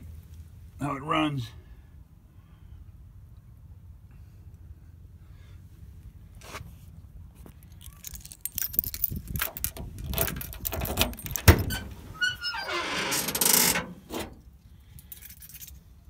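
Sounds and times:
keys and latch rattling: 7.6 - 11.9, 13.6 - 15.8
trunk latch thunk: 9.7 - 11.9.

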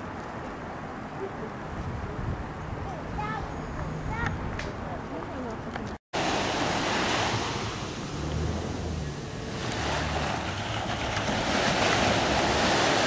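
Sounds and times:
wind buffeting microphone: 0.0 - 13.0
sea waves washing: 6.1 - 13.0.

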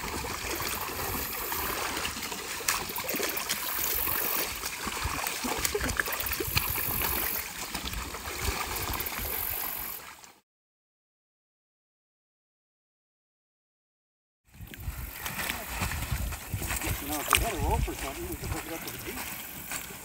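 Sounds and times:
river water sloshing and splashing: 0.0 - 10.4, 14.5 - 20.0.

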